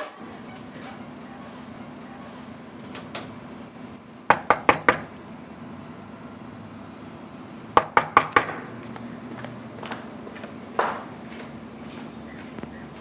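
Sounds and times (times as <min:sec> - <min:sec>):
knocking on a door: 0:04.3 - 0:05.1, 0:07.8 - 0:08.6.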